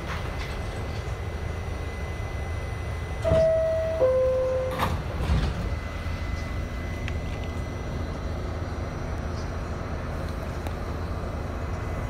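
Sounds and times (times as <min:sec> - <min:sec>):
train rumbling: 0:00.0 - 0:12.0
subway doors knocking shut: 0:03.2 - 0:05.9.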